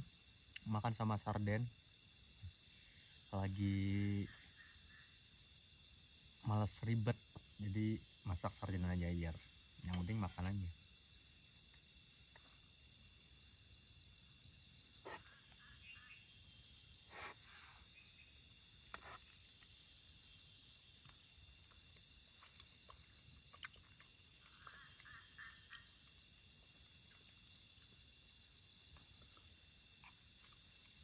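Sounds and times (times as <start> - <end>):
crickets chirping: 0.0 - 31.0.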